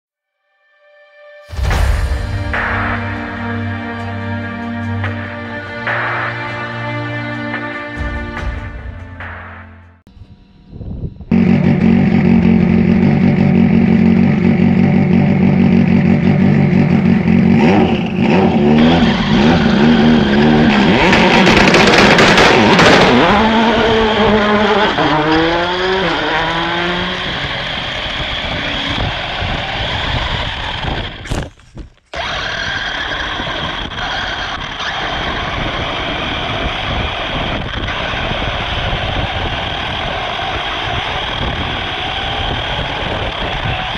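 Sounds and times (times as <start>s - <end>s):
rc car motor whining: 32.1s - 43.9s.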